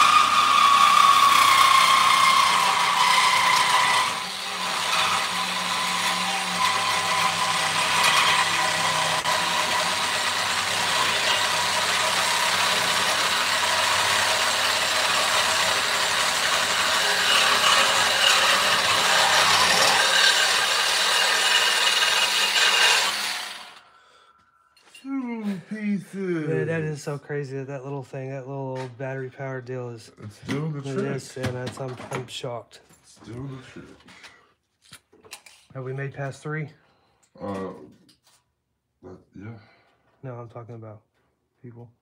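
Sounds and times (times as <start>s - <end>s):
cordless tool cutting steel: 0.0s - 23.9s.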